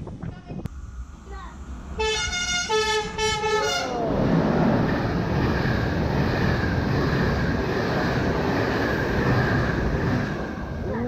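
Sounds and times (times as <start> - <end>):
wheel-on-rail rush: 0.8 - 11.0
train horn: 1.9 - 4.0.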